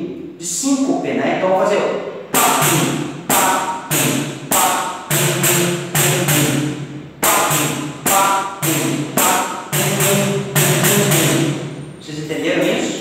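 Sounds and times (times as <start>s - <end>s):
pandeiro slaps and thumb strokes: 2.3s - 11.5s.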